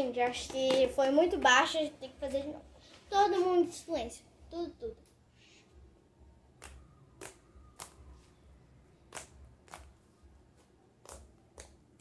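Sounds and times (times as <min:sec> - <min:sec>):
slime clicking: 0:06.6 - 0:08.0, 0:09.1 - 0:09.9.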